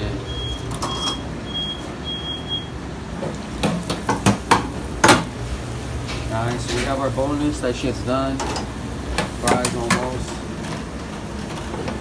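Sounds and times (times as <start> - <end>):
fryer timer beeping: 0.0 - 3.0
metal tongs clanking on fryer baskets: 3.3 - 5.3, 6.0 - 12.0.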